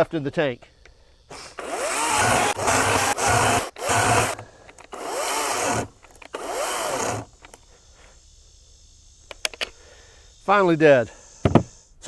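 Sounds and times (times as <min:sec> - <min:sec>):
electric chainsaw cutting log: 0:01.3 - 0:07.4.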